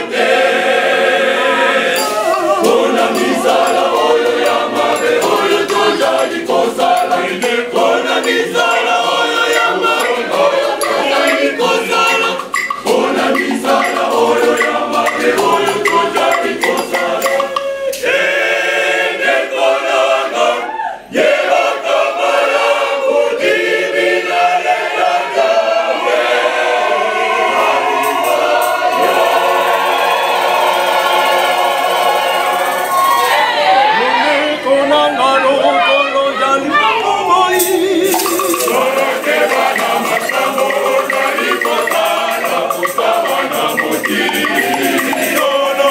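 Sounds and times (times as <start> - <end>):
choir singing: 0.0 - 45.9
metal shaker rattling: 2.0 - 17.8, 30.5 - 33.4, 37.6 - 45.9.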